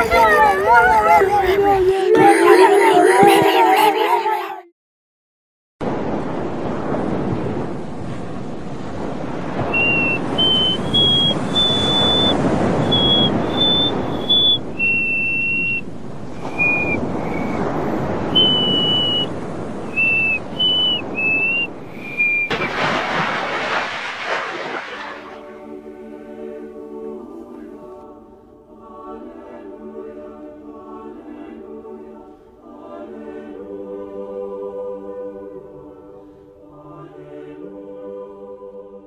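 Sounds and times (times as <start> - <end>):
sea waves: 0.0 - 4.4, 5.8 - 38.5
rush of noise: 5.8 - 26.5
person whistling a slow tune: 9.7 - 17.7, 18.3 - 19.3, 19.9 - 22.5.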